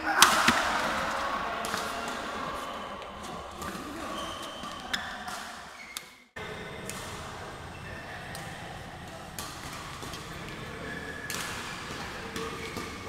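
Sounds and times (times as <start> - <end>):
rackets hitting shuttlecocks: 0.1 - 6.1, 9.2 - 13.0
shoes squeaking on court: 2.6 - 6.2.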